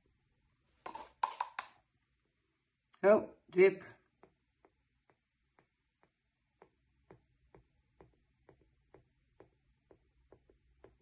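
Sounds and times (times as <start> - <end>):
dotting tool tapping on canvas: 4.1 - 11.0.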